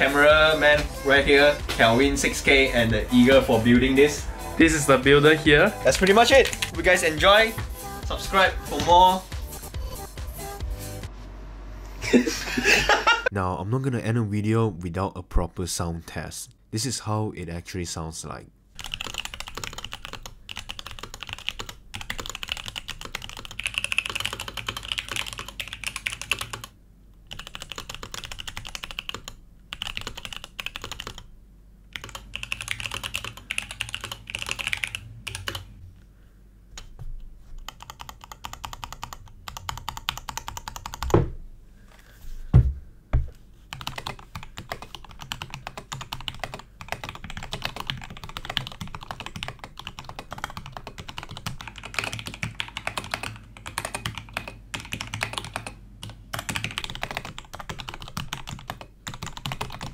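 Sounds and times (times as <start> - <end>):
fast mechanical keyboard typing: 5.9 - 6.9, 18.8 - 31.3, 31.9 - 35.7, 37.6 - 41.2, 43.7 - 59.9
heavy thumps: 41.0 - 41.6, 42.4 - 43.4.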